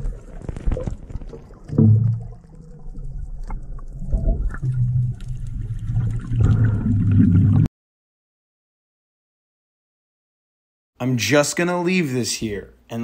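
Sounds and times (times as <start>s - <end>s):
underwater rumbling and bubbling: 0.0s - 7.7s.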